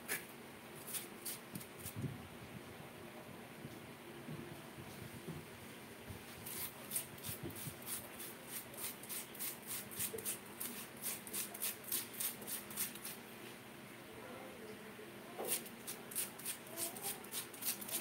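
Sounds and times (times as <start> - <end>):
potato being scraped by hand: 0.8 - 2.0, 6.4 - 13.2, 15.5 - 18.0.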